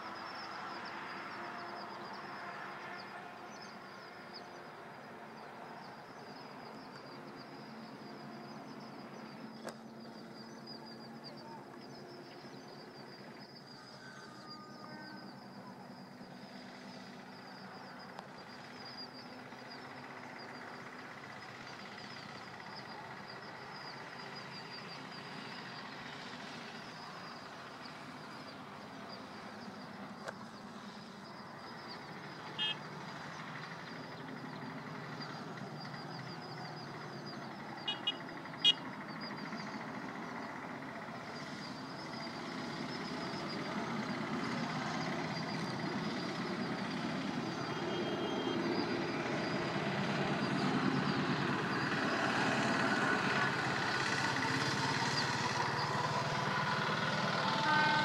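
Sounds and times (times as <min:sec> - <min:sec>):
diesel locomotive engines: 0:00.0 - 0:58.0.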